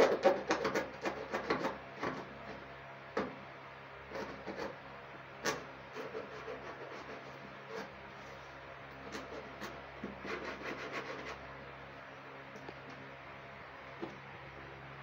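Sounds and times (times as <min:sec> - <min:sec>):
screwdriver scraping cardboard: 0:00.0 - 0:02.6, 0:04.1 - 0:04.8, 0:05.4 - 0:07.9, 0:09.0 - 0:11.4.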